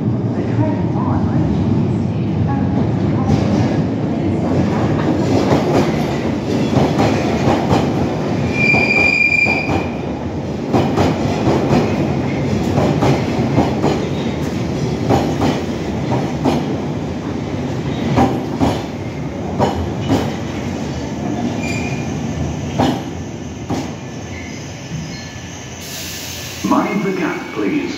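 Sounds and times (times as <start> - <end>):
train rumble: 0.0 - 27.9
high wheel squeal: 8.5 - 9.7.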